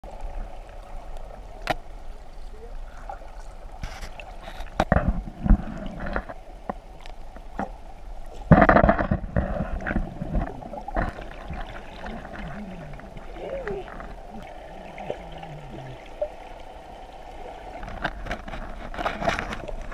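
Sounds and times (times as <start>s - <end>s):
muffled underwater wash: 0.0s - 19.9s
bubbly rushes of water: 8.2s - 19.9s.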